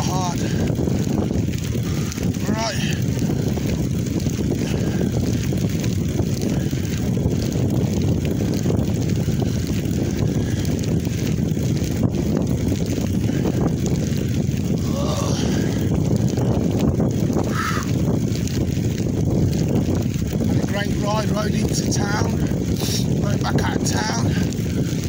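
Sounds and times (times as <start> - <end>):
wind buffeting microphone: 0.0 - 25.0.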